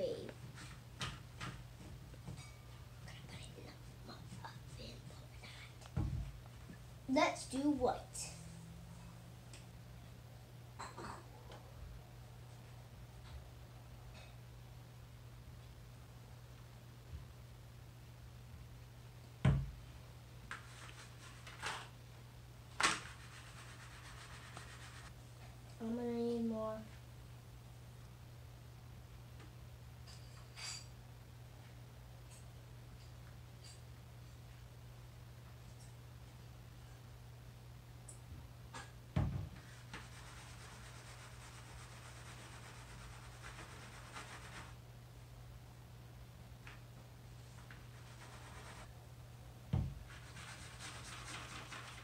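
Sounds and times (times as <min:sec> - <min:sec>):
steady low hum: 0:00.0 - 0:20.5
low electrical hum: 0:00.0 - 0:52.0.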